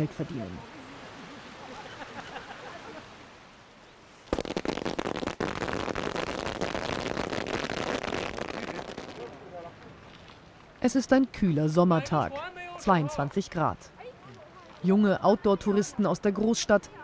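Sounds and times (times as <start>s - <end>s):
firecrackers crackling: 4.3s - 9.5s.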